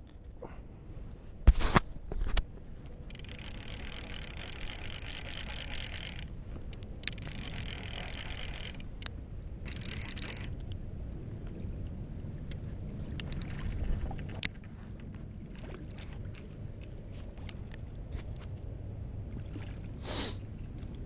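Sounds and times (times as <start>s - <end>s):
fishing reel gears whirring: 3.0s - 10.6s.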